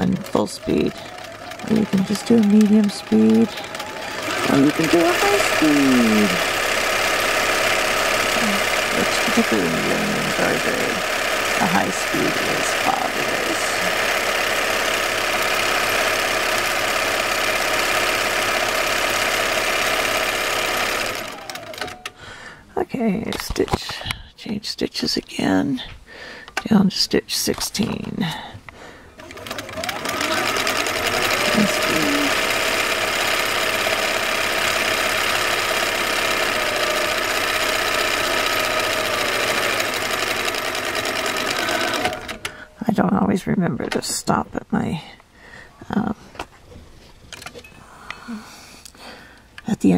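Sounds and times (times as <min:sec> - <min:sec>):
sewing machine running fast: 0:00.0 - 0:22.2, 0:29.2 - 0:42.8.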